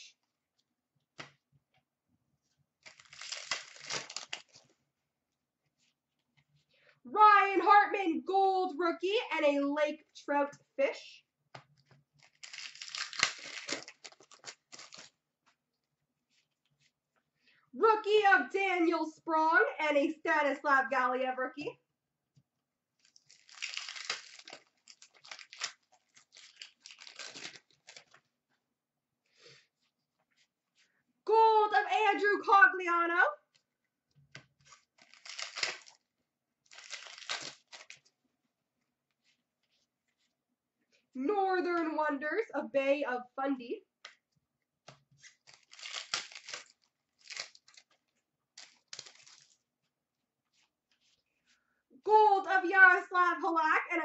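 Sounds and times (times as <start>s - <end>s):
card pack wrapper tearing and crinkling: 2.8s - 4.7s, 12.2s - 15.2s, 23.0s - 28.2s, 34.6s - 38.1s, 45.2s - 49.6s.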